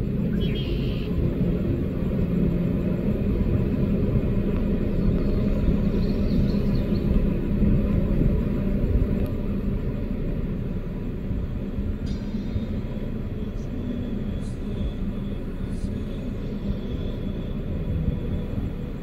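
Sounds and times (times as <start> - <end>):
faint hum: 0.0 - 19.0
low rumble: 0.0 - 19.0
faint bird chirps: 0.3 - 1.1.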